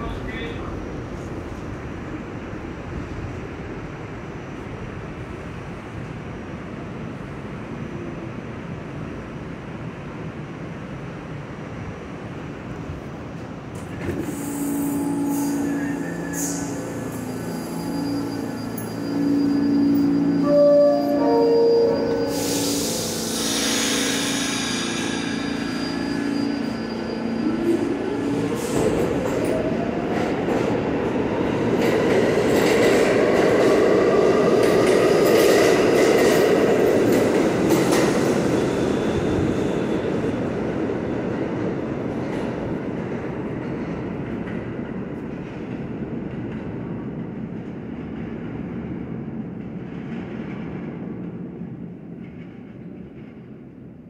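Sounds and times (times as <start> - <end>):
train cars rumbling and clattering: 0.0 - 54.0
subway motor whine: 0.1 - 42.9.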